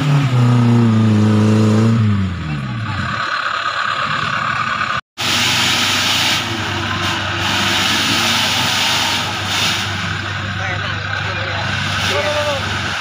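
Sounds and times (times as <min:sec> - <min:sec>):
off-road vehicle engine running: 0:00.0 - 0:13.0.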